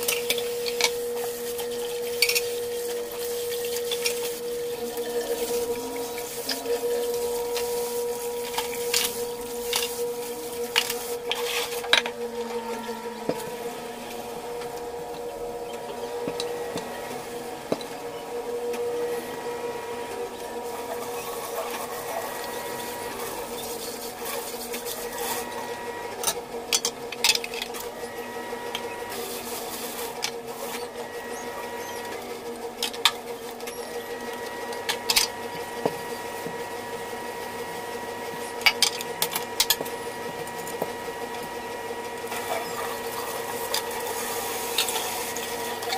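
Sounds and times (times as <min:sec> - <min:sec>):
steady hum: 0:00.0 - 0:24.2.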